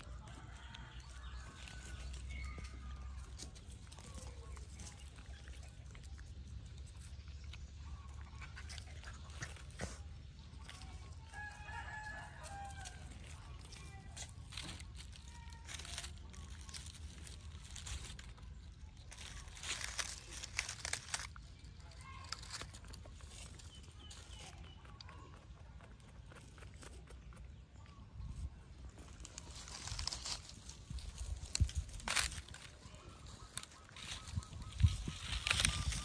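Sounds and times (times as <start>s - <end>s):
dry leaves crackling: 0.0s - 25.4s, 28.2s - 36.0s.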